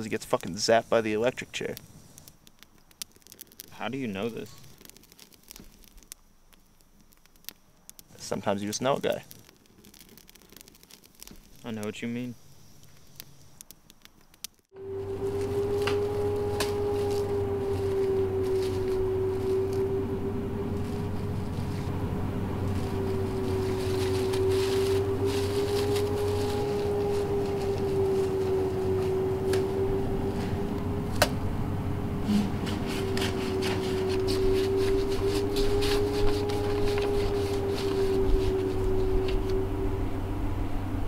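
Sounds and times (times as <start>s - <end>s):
clicks and crackles: 0.0s - 0.6s, 1.2s - 14.7s
low hum: 14.7s - 41.0s
wavering drone tone: 14.7s - 41.0s.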